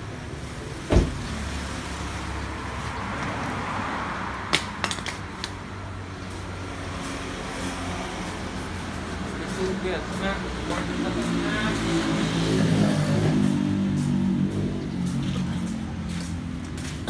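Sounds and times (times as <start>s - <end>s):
sharp thump: 0.9s - 1.2s.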